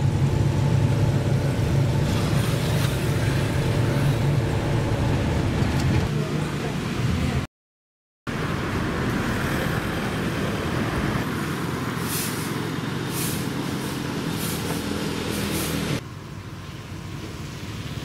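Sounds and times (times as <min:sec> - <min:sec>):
vehicle engine running: 0:00.0 - 0:07.4, 0:08.3 - 0:18.0
short hissing sounds: 0:12.0 - 0:16.0.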